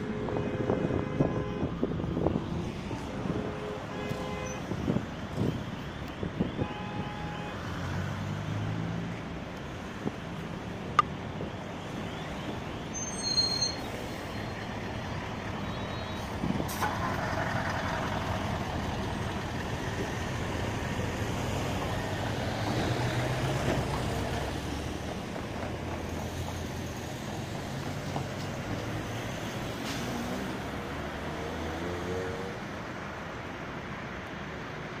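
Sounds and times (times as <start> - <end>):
rumble of passing cars: 0.0 - 35.0
high-pitched squeal: 12.8 - 14.6.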